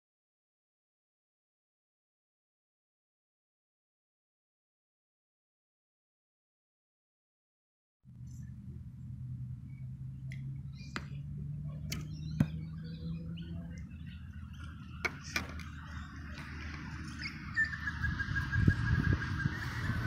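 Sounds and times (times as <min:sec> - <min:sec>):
birds chirping: 0:08.2 - 0:20.0.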